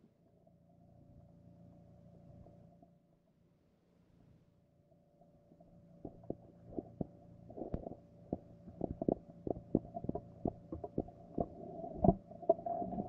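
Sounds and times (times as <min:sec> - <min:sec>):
steady hum: 0:04.8 - 0:13.0.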